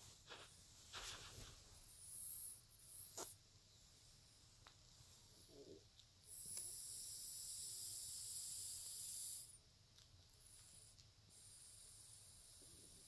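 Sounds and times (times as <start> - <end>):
faint cat breathing: 10.4 - 13.0.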